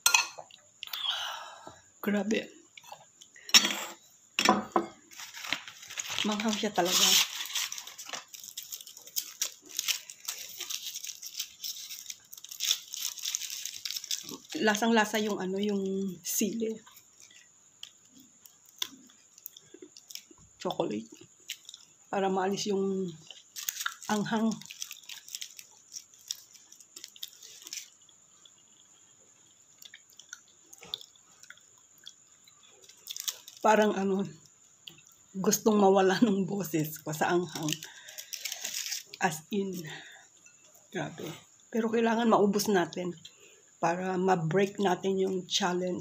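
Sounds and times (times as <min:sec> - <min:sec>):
person chewing noodles: 0:23.2 - 0:33.6.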